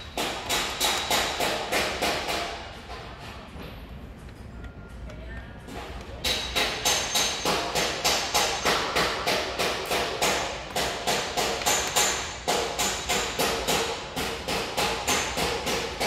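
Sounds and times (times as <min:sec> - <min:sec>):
sharp ringing knocks: 0:06.2 - 0:15.9.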